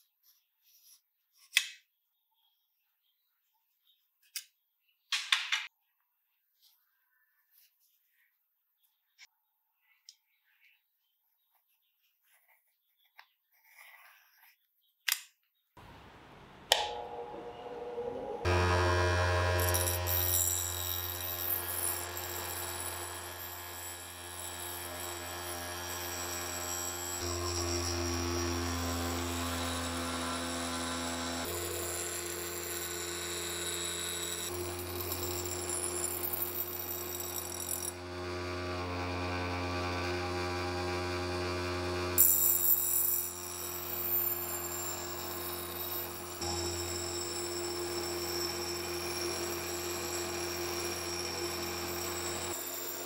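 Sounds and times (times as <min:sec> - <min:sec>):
grinder motor humming: 0:15.8 - 0:53.0
switch click: 0:16.7 - 0:17.2.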